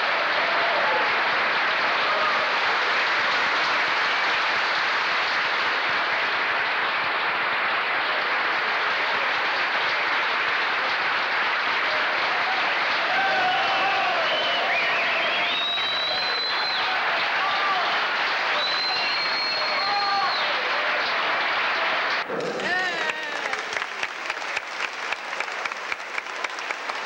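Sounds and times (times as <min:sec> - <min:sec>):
audience applauding: 0:00.0 - 0:27.0.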